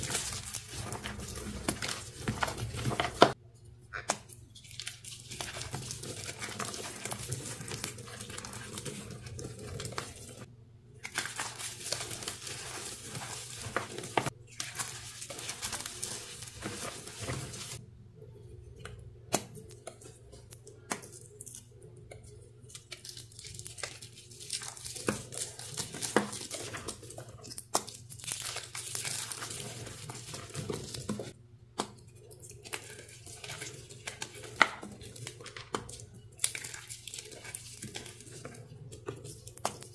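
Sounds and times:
chalk crushed and crumbled by hand: 0:00.0 - 0:03.4, 0:04.7 - 0:17.8.

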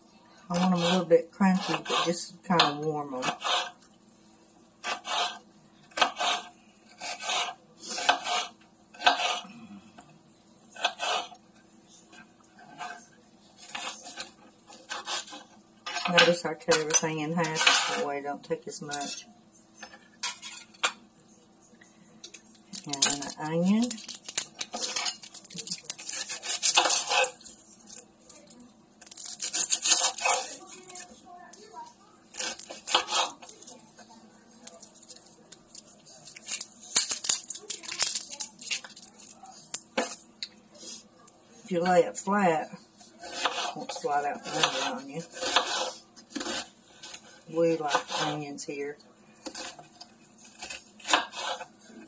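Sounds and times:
knife cutting onion on board: 0:00.5 - 0:03.8, 0:04.8 - 0:09.5, 0:25.8 - 0:27.4, 0:29.5 - 0:30.6, 0:32.4 - 0:33.5, 0:43.2 - 0:48.4, 0:50.5 - 0:51.7
knife slicing pepper on wooden board: 0:04.8 - 0:09.4, 0:26.0 - 0:27.4, 0:43.2 - 0:43.8.

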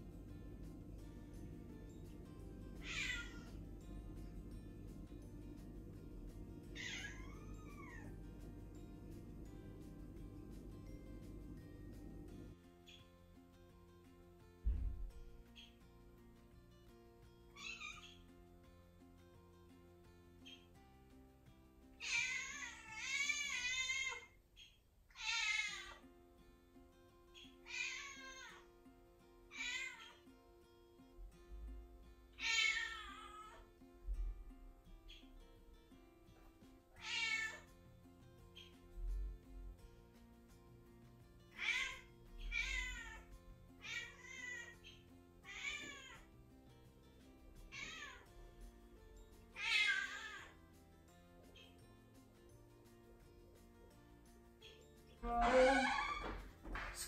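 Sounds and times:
faint plucked background music: 0:00.0 - 0:57.0
kitten meowing: 0:02.8 - 0:03.5, 0:06.8 - 0:08.1.

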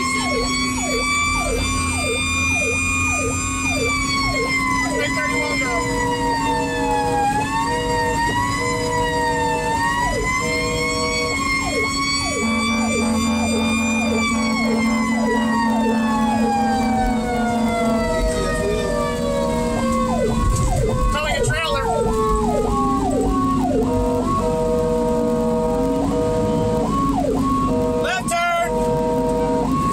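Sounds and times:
rapid sweeping siren: 0:00.0 - 0:29.9
steady low siren tones: 0:00.0 - 0:29.9
truck engine rumble: 0:00.0 - 0:29.9
wailing siren: 0:00.0 - 0:29.9.

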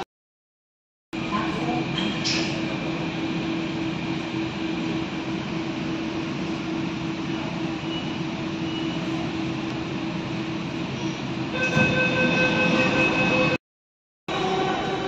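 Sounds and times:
train carriage rumble: 0:01.2 - 0:13.6, 0:14.3 - 0:15.0.

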